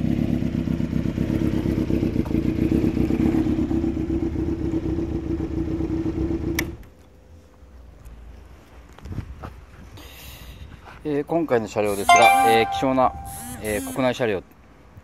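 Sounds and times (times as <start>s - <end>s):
motorcycle engine idling: 0.0s - 6.4s.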